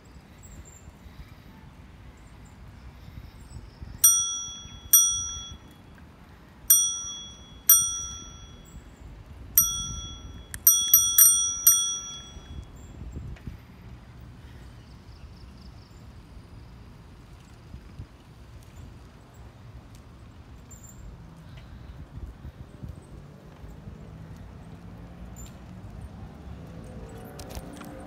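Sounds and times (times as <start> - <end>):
low rumble of riding: 0.0 - 28.0
bicycle bell dings: 4.0 - 5.8, 6.7 - 9.0, 9.6 - 12.9.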